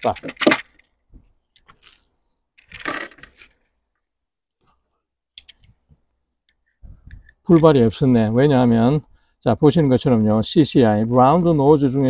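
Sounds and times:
metallic clicks of cartridges: 5.3 - 5.7.

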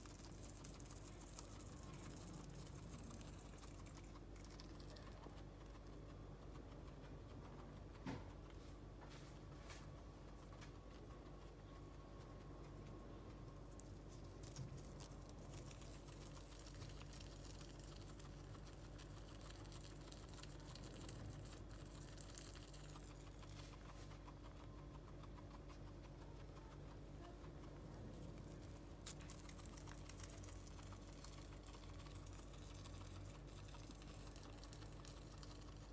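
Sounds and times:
guinea pig chewing grass stems: 0.0 - 35.9.

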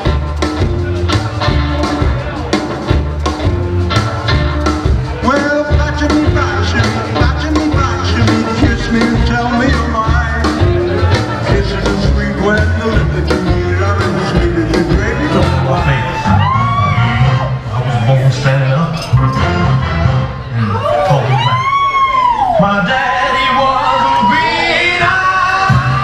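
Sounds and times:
upright bass: 0.0 - 21.8, 22.5 - 26.0
rockabilly band playing: 0.0 - 26.0
person singing: 5.1 - 19.8, 22.4 - 26.0.

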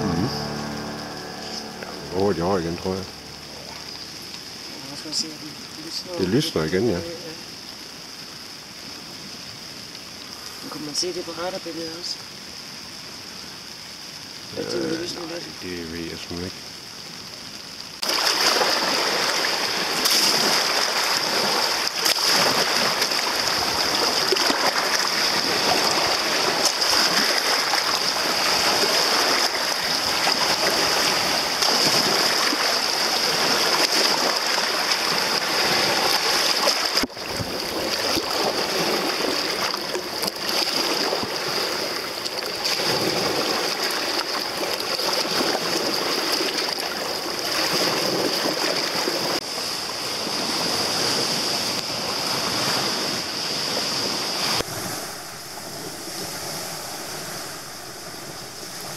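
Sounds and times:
waterfall rushing: 0.0 - 7.8, 18.0 - 58.9.

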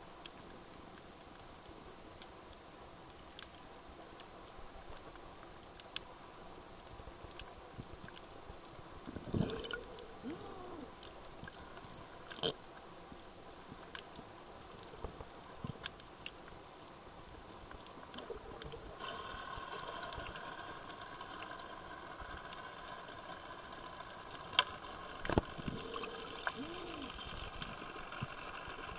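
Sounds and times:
underwater hiss: 25.2 - 28.8.

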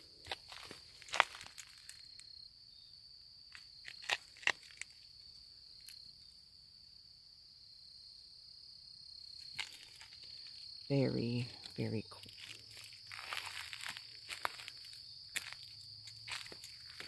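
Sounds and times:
footsteps crunching on trail: 0.0 - 2.2, 9.4 - 10.8, 11.5 - 17.0
high-pitched insect chorus: 0.0 - 17.0.

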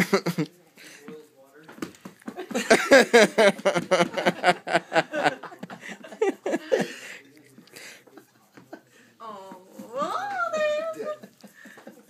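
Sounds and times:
person laughing: 2.5 - 6.9.

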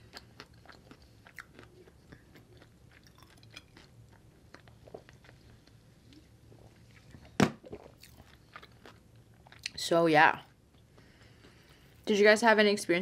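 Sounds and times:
person chewing: 0.0 - 9.8, 10.5 - 12.0
person drinking and swallowing: 6.5 - 8.3.

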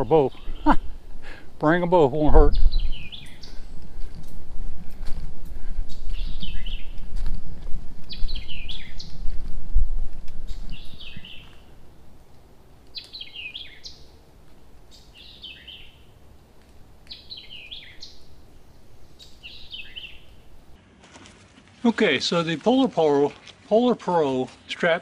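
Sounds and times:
songbird singing: 0.0 - 9.4, 10.3 - 20.8
low rumble: 0.0 - 12.3.

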